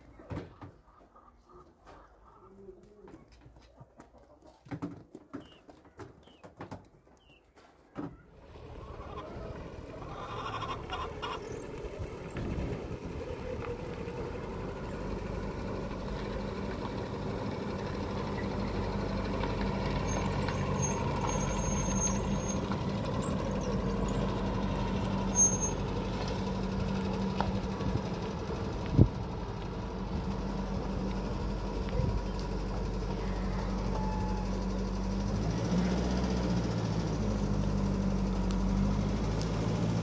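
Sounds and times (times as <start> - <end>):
engine humming steadily: 8.3 - 40.0.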